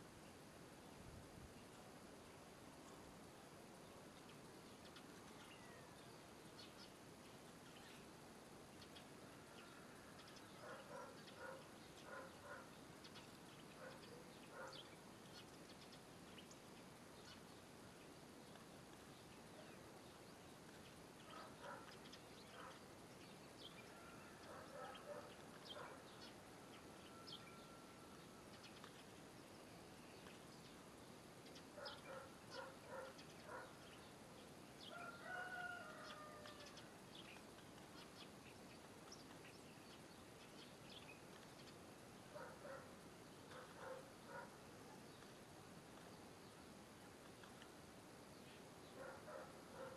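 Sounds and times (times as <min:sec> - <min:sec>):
low hiss: 0:00.0 - 0:49.9
bird calls: 0:04.7 - 0:07.0, 0:08.8 - 0:16.6, 0:18.4 - 0:29.2, 0:31.4 - 0:34.2, 0:34.8 - 0:45.4, 0:48.4 - 0:49.9.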